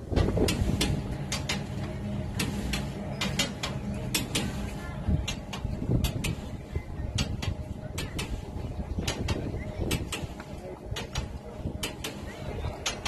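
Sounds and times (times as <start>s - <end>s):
low steady hum: 0.0s - 13.0s
wooden machinery knocking and clicking: 0.1s - 4.6s, 7.1s - 8.4s, 9.0s - 12.2s, 12.8s - 13.0s.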